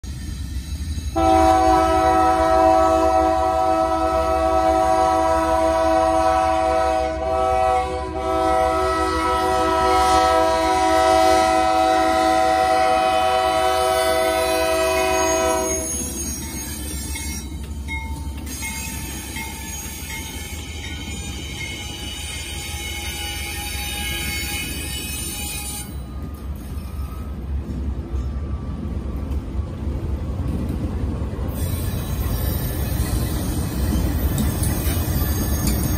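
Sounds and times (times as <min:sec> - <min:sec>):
train rumbling past: 0:00.0 - 0:35.9
locomotive air horn: 0:01.2 - 0:16.1.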